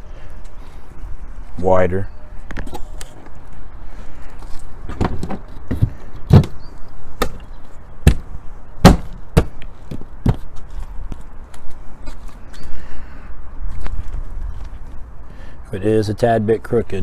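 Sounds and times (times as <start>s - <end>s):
sharp knocks: 8.0s - 10.4s.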